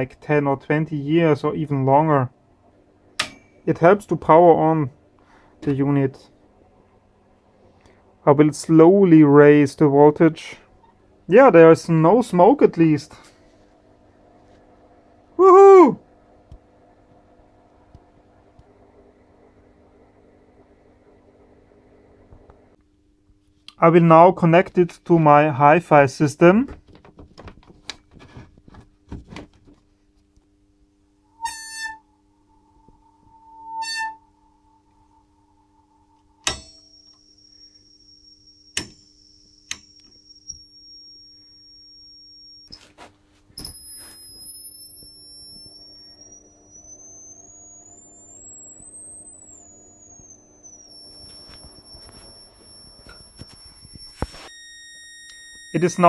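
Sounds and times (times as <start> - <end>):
low steady hum: 0.0 - 56.0
sine wave tone rising and falling: 31.1 - 42.9, 43.6 - 56.0.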